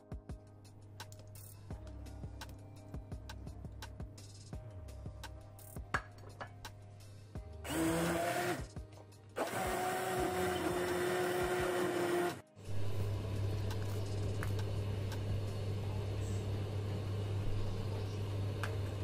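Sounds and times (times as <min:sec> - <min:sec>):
immersion blender motor whirring: 0:07.6 - 0:08.7, 0:09.4 - 0:12.4
steady low hum: 0:12.6 - 0:19.0.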